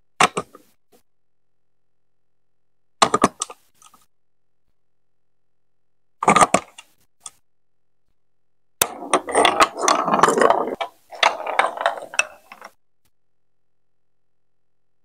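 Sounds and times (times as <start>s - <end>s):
plastic ball rolling down chutes: 8.8s - 12.8s.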